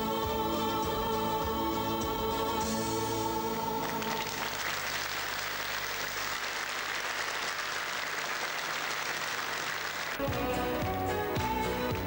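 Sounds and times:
audience applause: 3.8 - 10.4.

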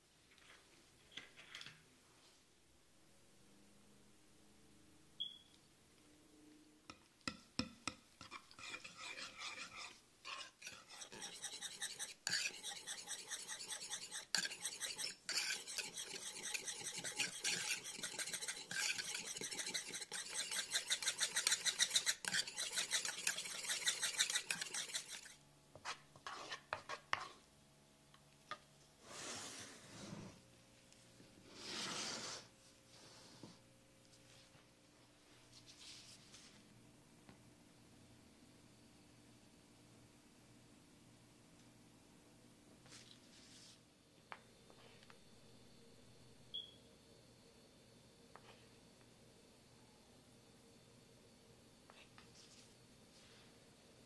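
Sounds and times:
utensil scraping wooden bowl: 8.2 - 25.4, 26.2 - 27.4.

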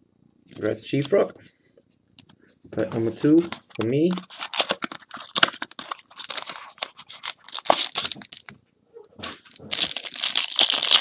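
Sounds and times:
foil wrapper crinkling and tearing: 3.4 - 8.5, 9.2 - 11.0.

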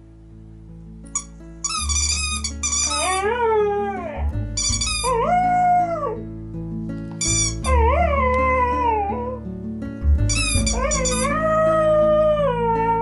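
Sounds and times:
background music with low notes: 0.0 - 13.0
dog whining: 1.7 - 6.2, 7.2 - 9.4, 10.3 - 13.0
dog howling: 2.9 - 4.4, 5.0 - 6.2, 7.6 - 9.4, 10.6 - 13.0.

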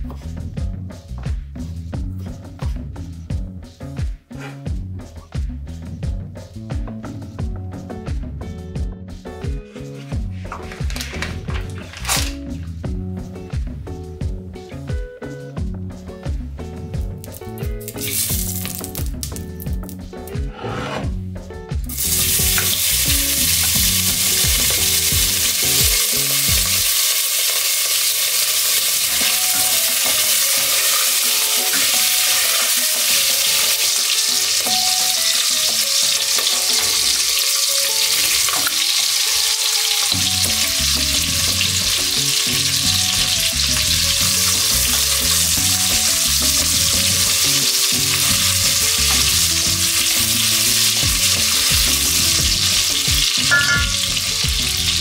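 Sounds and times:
bacon sizzling in a pot: 17.2 - 20.0, 21.9 - 55.0.

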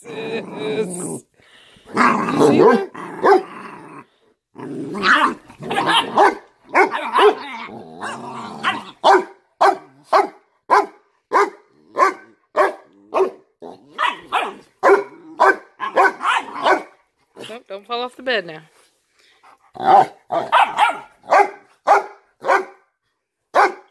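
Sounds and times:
dogs growling: 0.0 - 10.1, 11.6 - 17.5, 19.5 - 21.4
dog short barks: 19.9 - 22.8, 23.6 - 23.9.

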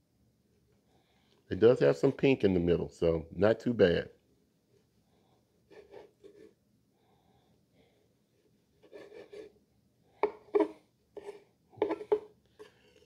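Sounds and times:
knife rasping on wooden board: 10.5 - 12.7.

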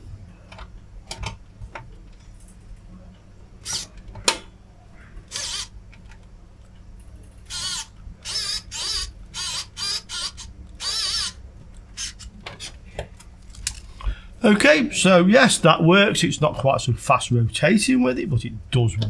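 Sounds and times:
electric screwdriver whirring: 3.6 - 3.9, 5.3 - 5.7, 7.5 - 11.4, 12.0 - 12.2.

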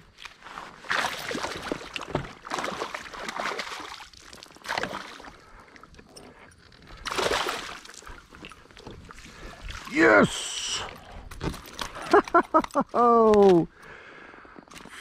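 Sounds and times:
fish splashing in water: 0.8 - 5.5, 7.0 - 9.9.

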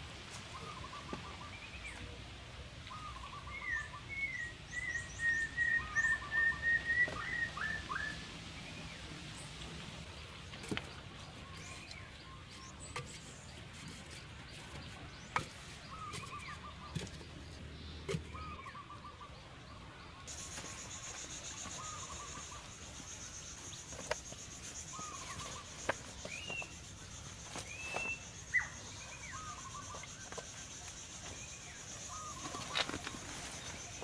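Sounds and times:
birds calling: 0.4 - 2.2, 2.9 - 34.0.

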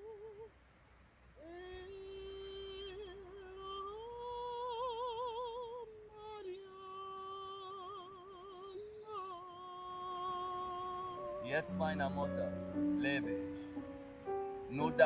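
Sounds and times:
woman singing unaccompanied: 0.0 - 0.5, 1.4 - 12.2.

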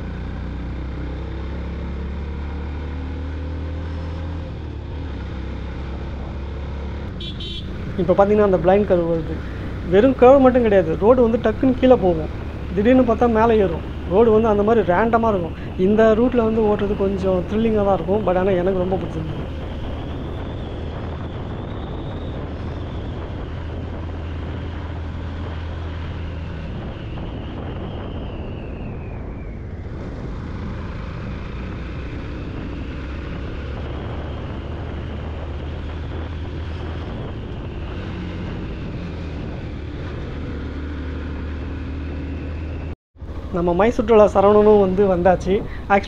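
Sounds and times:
motorcycle engine running: 0.0 - 14.6
wind rushing over microphone: 3.5 - 46.0.

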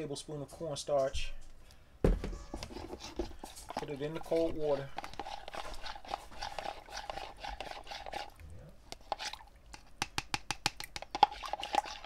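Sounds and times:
spoon scraping and clicking in cup: 2.6 - 12.0.

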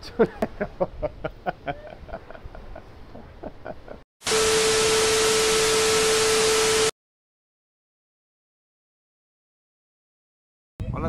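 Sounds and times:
man laughing: 0.0 - 4.0
tv static hiss with tone: 4.3 - 6.9.

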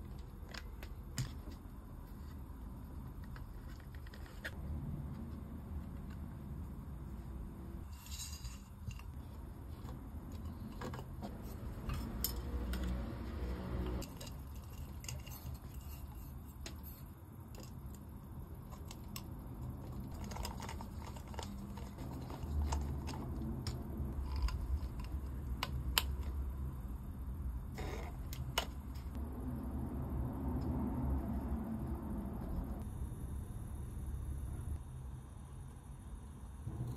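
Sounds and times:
low steady hum: 0.0 - 36.9
lamp parts clicking and scraping: 7.8 - 13.2, 13.8 - 26.4.

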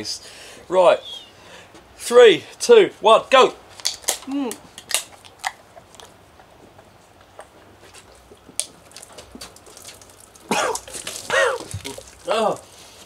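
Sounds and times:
person gulping and swallowing: 8.1 - 12.8
small clicks and splashes: 8.5 - 12.6.

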